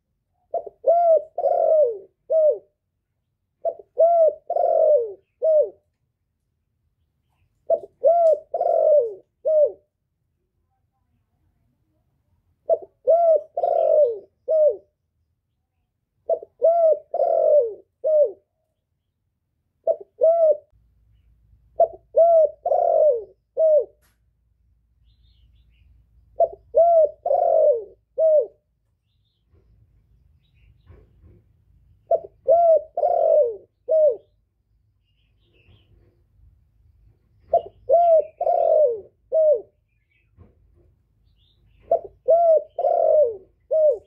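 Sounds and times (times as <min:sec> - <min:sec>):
dove cooing: 0:00.4 - 0:02.8, 0:03.6 - 0:05.9, 0:07.6 - 0:10.0, 0:12.6 - 0:15.0, 0:16.2 - 0:18.6, 0:19.8 - 0:20.7, 0:21.8 - 0:24.0, 0:26.4 - 0:28.7, 0:32.0 - 0:34.4, 0:37.4 - 0:39.9, 0:41.7 - 0:44.0.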